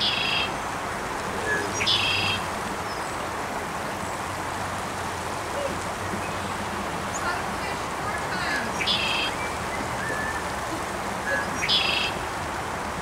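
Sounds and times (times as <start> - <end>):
creek water flowing: 0.0 - 13.0
songbird buzzy trill: 8.6 - 12.2.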